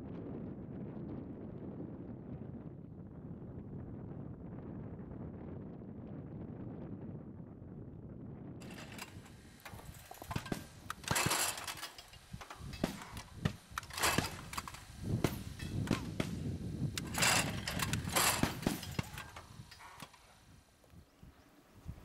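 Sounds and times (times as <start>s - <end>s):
mechanical clicks and knocks: 8.6s - 20.4s
clay trap throwing bursts: 8.6s - 20.8s.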